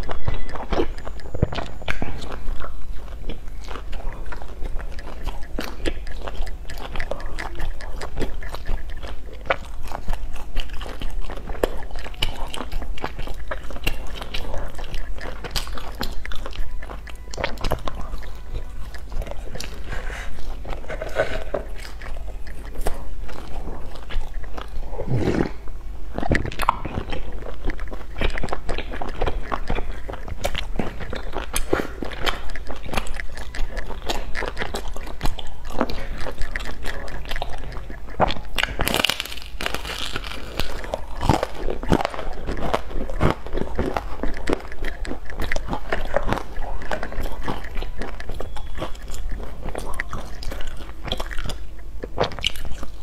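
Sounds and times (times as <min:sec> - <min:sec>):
chewing crunchy pastries: 0:00.0 - 0:53.0.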